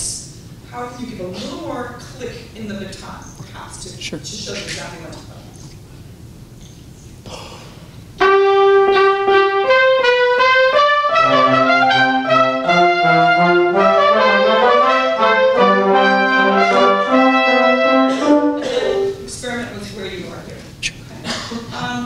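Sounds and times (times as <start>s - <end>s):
small instrumental ensemble: 8.2s - 19.4s.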